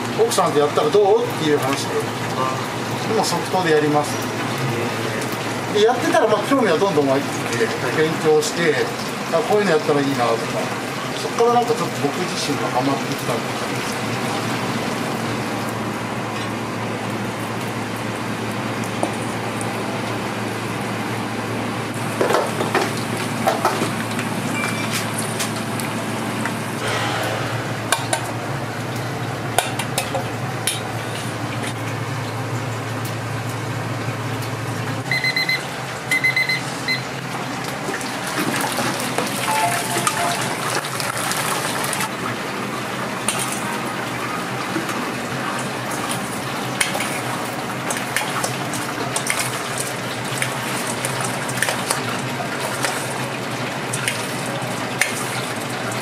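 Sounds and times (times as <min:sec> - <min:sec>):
oil sizzling and bubbling: 0:00.0 - 0:56.0
electronic beeper beeping: 0:35.1 - 0:37.0, 0:39.4 - 0:40.7.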